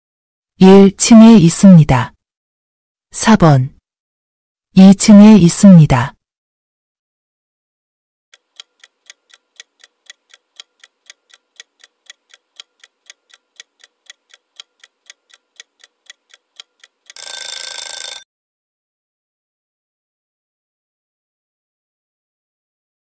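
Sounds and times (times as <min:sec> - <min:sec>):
clock ticking countdown: 0:08.4 - 0:18.2.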